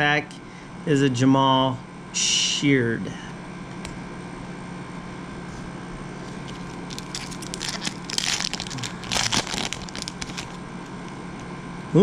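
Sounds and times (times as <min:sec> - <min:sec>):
foil wrapper crinkling and tearing: 0:06.3 - 0:10.6.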